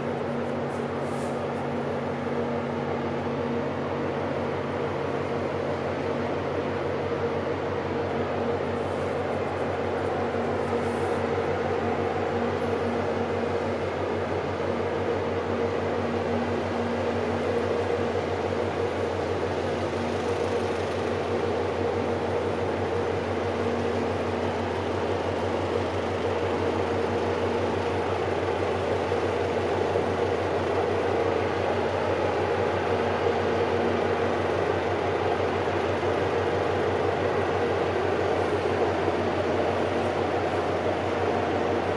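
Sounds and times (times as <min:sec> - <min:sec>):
ship engines droning: 0:00.0 - 0:41.9.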